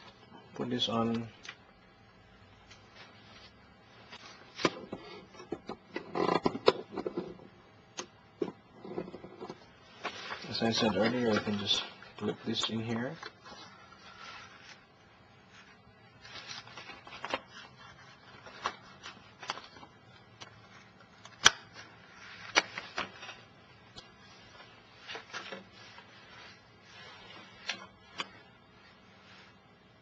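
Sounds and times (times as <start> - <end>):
paper rustling: 9.0 - 29.7.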